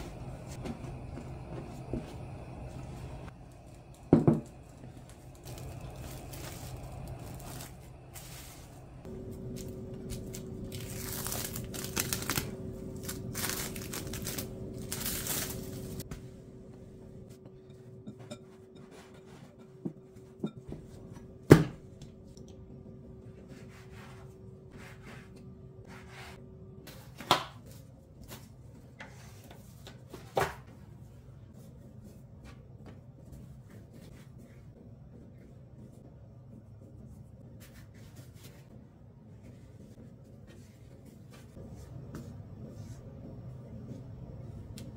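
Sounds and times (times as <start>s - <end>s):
cling wrap crinkling: 5.1s - 16.0s.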